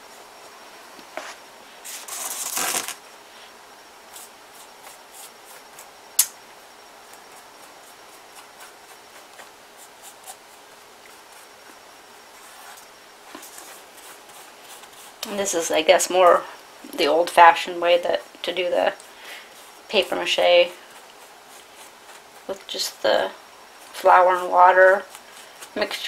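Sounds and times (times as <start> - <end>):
paper rustle: 1.2 - 3.0
sharp click: 6.2 - 6.4
paintbrush strokes on paper: 7.3 - 16.4, 17.6 - 23.0.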